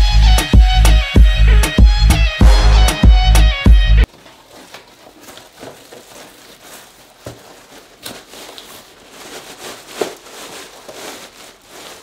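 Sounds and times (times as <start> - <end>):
cardboard rustling and scraping: 4.1 - 12.0.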